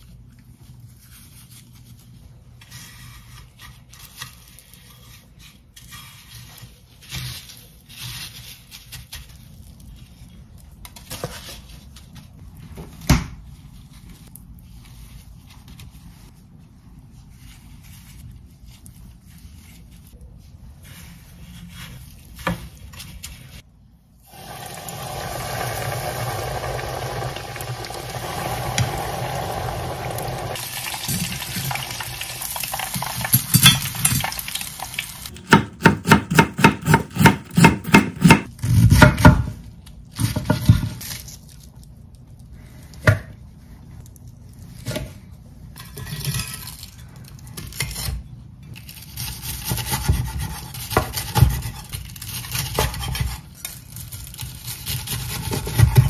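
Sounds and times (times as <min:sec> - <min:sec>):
cutlet sizzling in hot oil: 0:24.3 - 0:35.3
knife crunching through fried crust: 0:30.5 - 0:35.1, 0:46.6 - 0:56.0
knife chopping on wooden board: 0:35.4 - 0:39.5.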